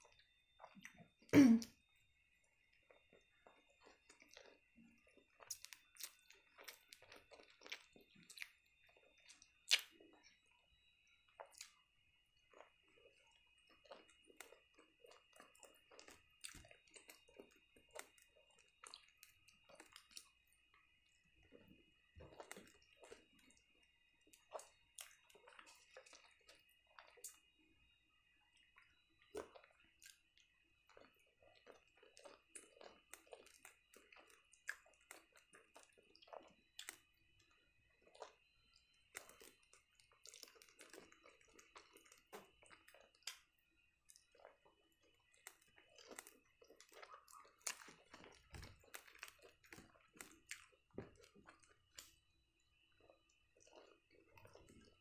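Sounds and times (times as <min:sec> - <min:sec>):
close-miked chewing: 0:00.0 - 0:01.3, 0:02.2 - 0:55.0
wet mouth clicks: 0:09.7 - 0:09.9.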